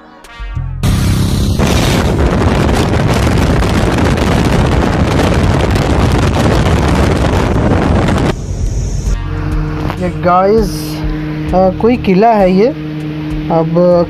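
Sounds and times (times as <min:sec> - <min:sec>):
wind buffeting microphone: 0:01.6 - 0:11.6.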